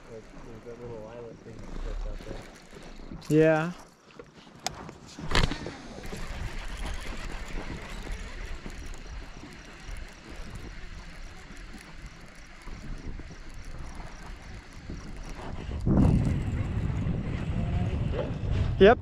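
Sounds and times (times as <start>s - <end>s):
wind buffeting microphone: 5.1s - 19.0s.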